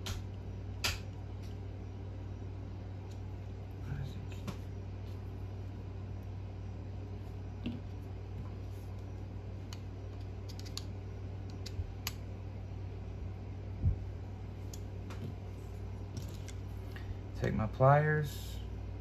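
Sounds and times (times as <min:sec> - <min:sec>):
steady low hum: 0:00.0 - 0:19.0
metal parts clicking and tapping: 0:09.7 - 0:10.9.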